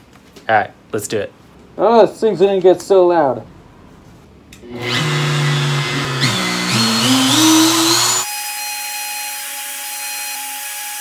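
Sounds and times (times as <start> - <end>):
router motor whining: 4.7 - 11.0.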